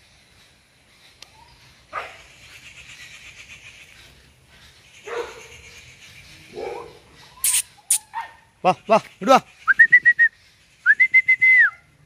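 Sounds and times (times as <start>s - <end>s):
puppy yelping: 6.6s - 8.4s.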